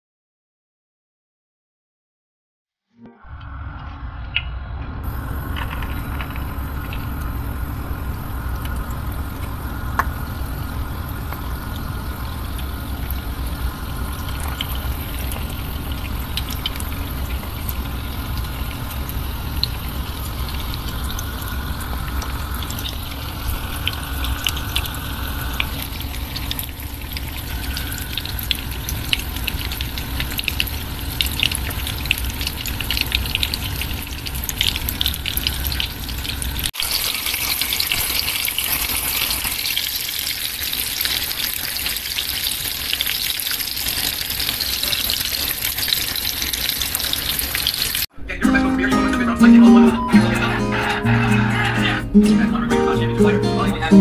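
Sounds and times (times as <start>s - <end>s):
spring rolls sizzling in oil: 5.2s - 48.1s.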